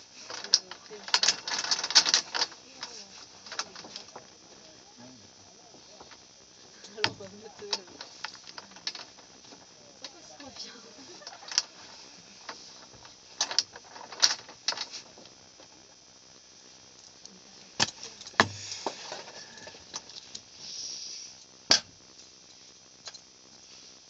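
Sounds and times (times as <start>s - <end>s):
rattling: 0.0s - 4.4s.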